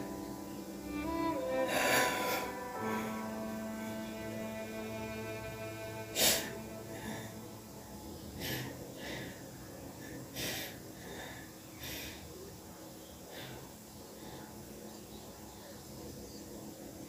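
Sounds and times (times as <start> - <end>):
sad violin music: 0.0 - 8.0.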